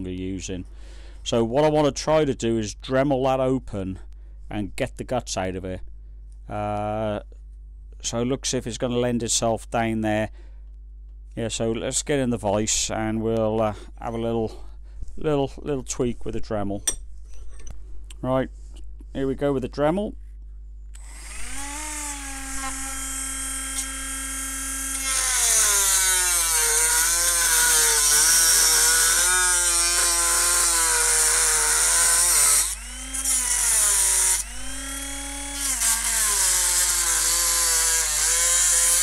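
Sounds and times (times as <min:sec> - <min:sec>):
rotary tool motor whine: 0:21.0 - 0:39.0.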